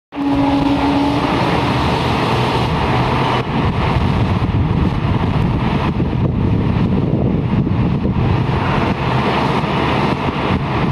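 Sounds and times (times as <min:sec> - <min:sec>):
locomotive horn blast: 0:00.1 - 0:02.0
wind noise on microphone: 0:00.1 - 0:10.9.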